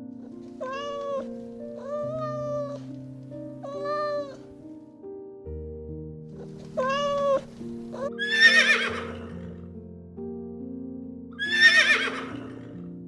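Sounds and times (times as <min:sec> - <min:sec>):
background music: 0:00.0 - 0:13.0
kitten meowing: 0:00.6 - 0:02.9, 0:03.6 - 0:04.4, 0:06.4 - 0:09.4, 0:11.4 - 0:12.5
horse whinnying: 0:08.2 - 0:09.6, 0:11.4 - 0:12.7.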